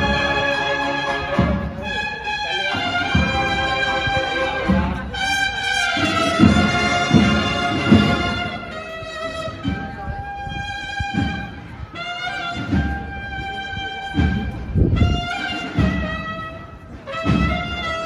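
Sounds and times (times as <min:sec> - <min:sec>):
drum strokes: 0:00.0 - 0:18.0
held brass notes: 0:00.0 - 0:18.0.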